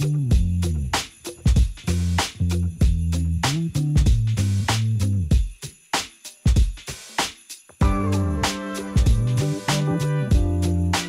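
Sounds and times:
background music with drum beat: 0.0 - 11.0.

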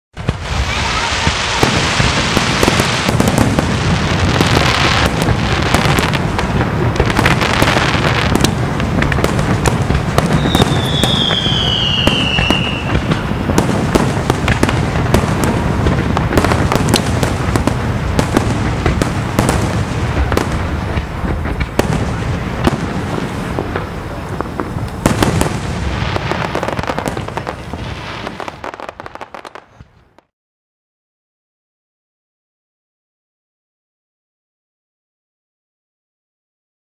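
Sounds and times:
falling firework whistle: 0.2 - 6.2, 9.4 - 15.6
firework shell bursts and crackles: 0.2 - 30.3.

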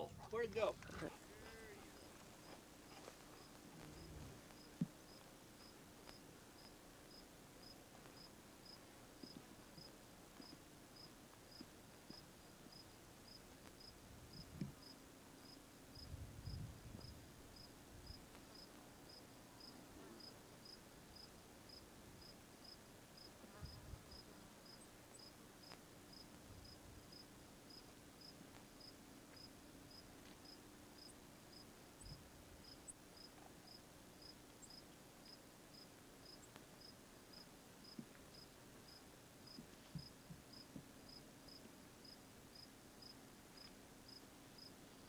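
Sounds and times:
cricket chirping: 1.6 - 44.7.

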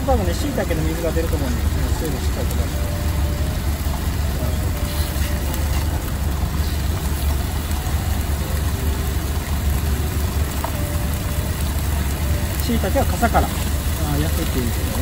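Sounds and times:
diesel truck engine idling: 0.0 - 15.0
food sizzling in a pan: 4.4 - 15.0.

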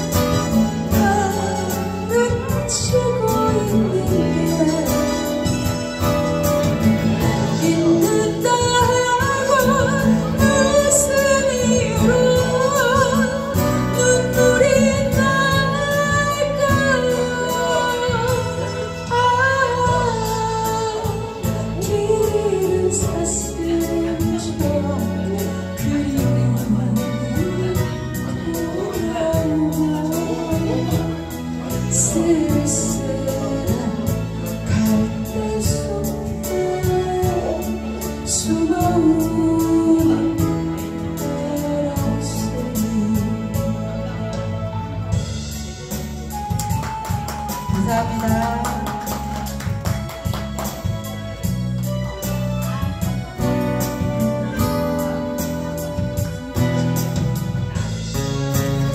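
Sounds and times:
acoustic guitar strumming: 0.0 - 21.8
strummed acoustic guitar: 0.0 - 43.7
woman singing a slow ballad: 0.0 - 45.3, 46.3 - 51.6, 52.2 - 58.9.

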